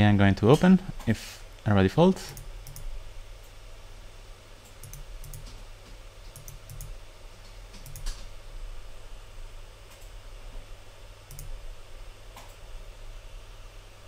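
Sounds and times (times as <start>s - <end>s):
low steady hum: 0.0s - 14.0s
computer mouse clicking: 2.3s - 2.9s, 4.7s - 5.6s, 6.3s - 7.0s, 7.7s - 8.3s, 11.3s - 11.6s.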